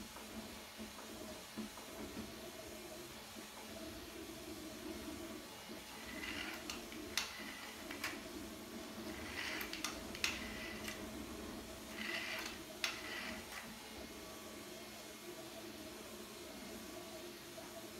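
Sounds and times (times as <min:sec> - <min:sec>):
toy rocket whirring: 0:06.0 - 0:08.3, 0:09.0 - 0:11.1, 0:11.9 - 0:13.7.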